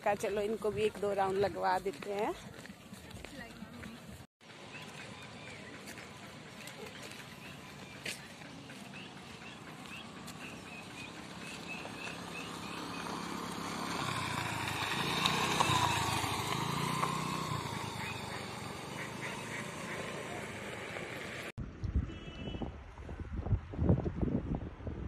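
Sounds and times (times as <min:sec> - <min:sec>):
motor scooter engine whine: 0:07.2 - 0:22.6.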